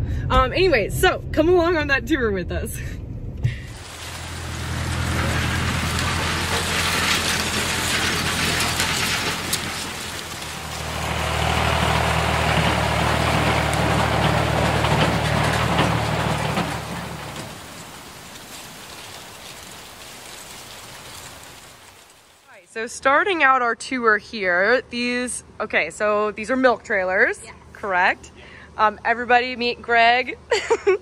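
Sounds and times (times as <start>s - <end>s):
engine droning with hiss: 3.5s - 22.6s.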